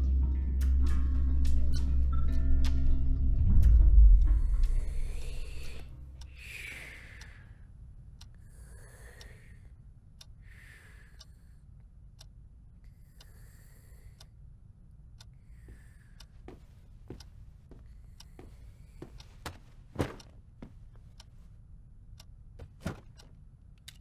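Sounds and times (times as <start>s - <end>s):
music: 0.0s - 6.4s
low room hum: 0.0s - 24.0s
soft breaths: 4.3s - 21.6s
clock ticking: 8.2s - 11.4s, 14.0s - 21.4s, 22.1s - 24.0s.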